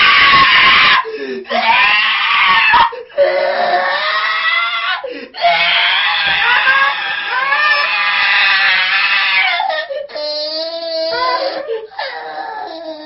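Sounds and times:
man wailing and sobbing: 0.0s - 13.0s
man gasping for breath: 1.0s - 1.5s, 5.0s - 5.4s.

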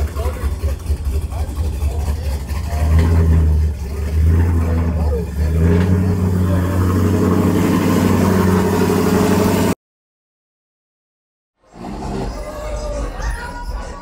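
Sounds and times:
faint voices: 0.0s - 7.0s, 11.7s - 14.0s
truck engine running: 0.0s - 9.8s.

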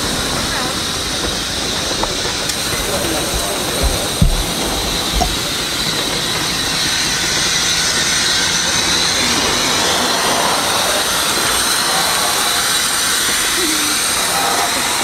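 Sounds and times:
steam locomotive hissing: 0.0s - 15.0s.

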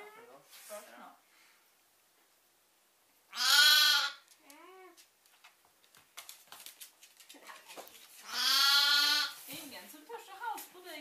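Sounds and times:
lamb bleating: 3.3s - 4.2s, 8.3s - 9.4s.

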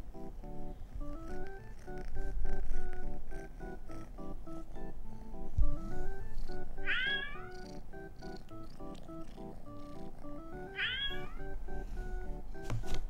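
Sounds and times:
background music: 0.0s - 13.0s
cat meowing: 6.8s - 7.7s, 8.3s - 11.4s.

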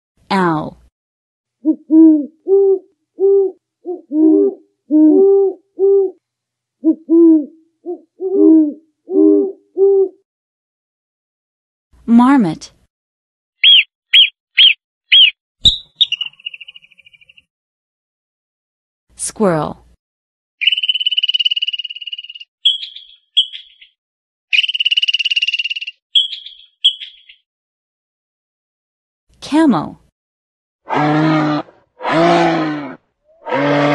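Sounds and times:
owl hooting: 1.6s - 6.2s, 6.8s - 10.2s, 13.6s - 17.4s, 20.6s - 23.9s, 24.5s - 27.4s
squirrel chattering trills: 13.6s - 17.4s, 20.6s - 23.9s, 24.5s - 27.4s
squirrel short chirps: 13.6s - 17.4s.

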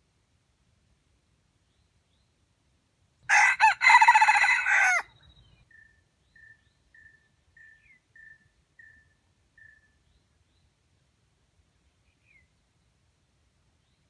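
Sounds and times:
rooster crowing: 3.3s - 5.1s.

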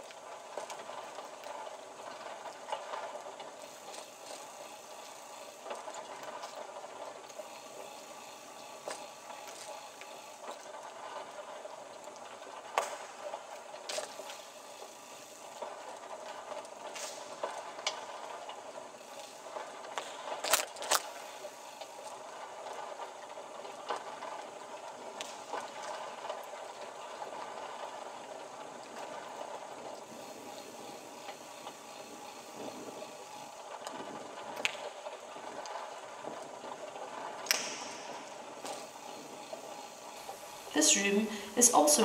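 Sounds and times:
sharp loud clicks: 37.4s - 38.0s.

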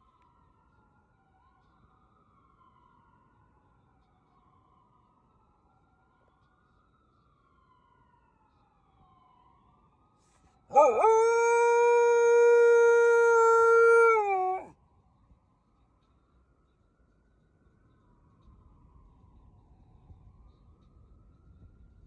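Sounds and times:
distant ambulance siren wailing: 10.7s - 14.7s
dog howling: 10.7s - 14.7s.

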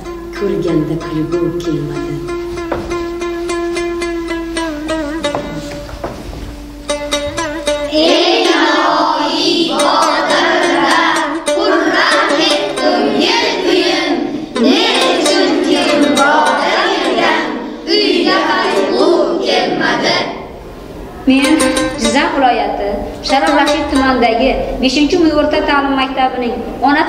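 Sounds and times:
plucked string music: 0.0s - 19.9s, 20.9s - 25.8s
group singing: 7.9s - 20.6s.

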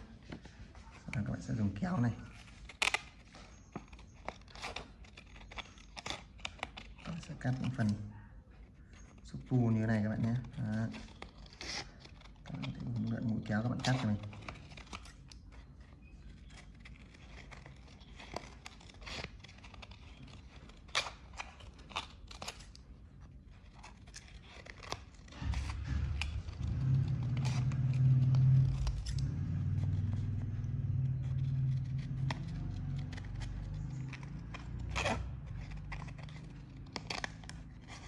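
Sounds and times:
scissors snipping paper: 1.0s - 8.0s, 8.6s - 38.0s
low steady drone: 25.3s - 35.5s.

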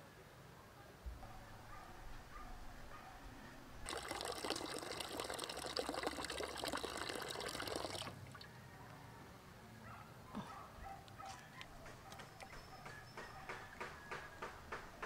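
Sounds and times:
water pouring into metal pot: 3.8s - 8.4s.

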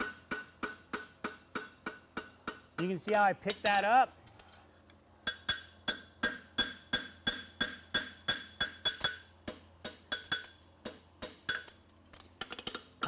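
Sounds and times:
hammer striking horseshoe on anvil: 0.0s - 2.9s, 5.2s - 11.8s.

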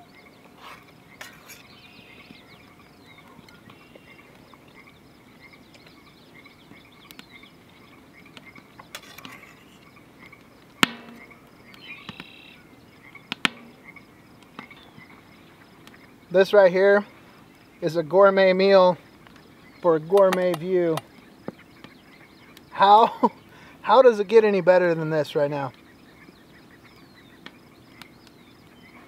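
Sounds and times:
frogs calling in chorus: 0.0s - 29.0s
sharp clicks: 20.1s - 22.0s.

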